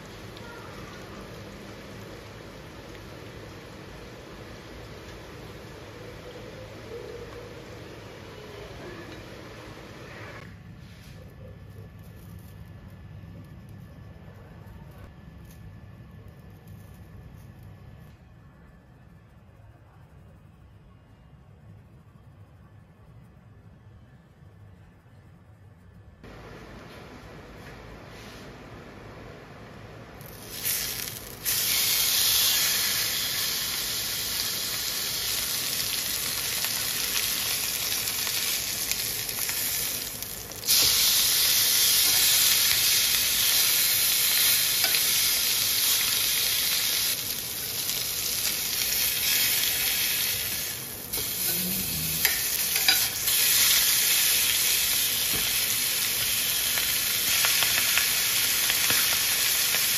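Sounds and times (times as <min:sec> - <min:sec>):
steak sizzling in skillet: 0:30.2 - 0:59.9.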